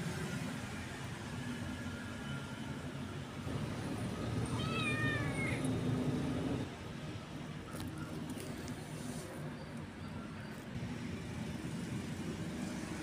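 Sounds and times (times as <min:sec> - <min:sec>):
kitten meowing: 0:04.5 - 0:05.6.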